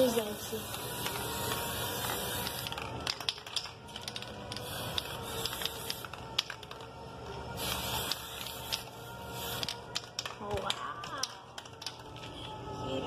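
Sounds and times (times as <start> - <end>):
aerosol spray can hissing: 0.0 - 6.5, 7.5 - 10.1.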